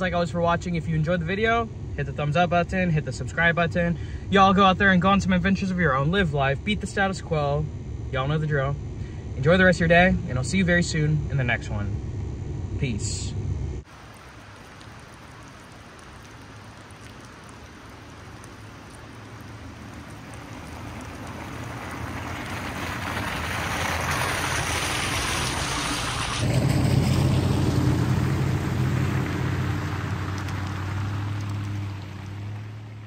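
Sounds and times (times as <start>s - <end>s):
truck engine humming: 5.4s - 33.0s
tyre hiss on wet road: 13.9s - 32.7s.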